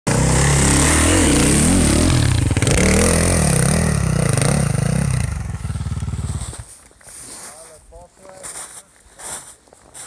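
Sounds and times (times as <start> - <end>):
motorcycle engine revving: 0.1 - 6.7.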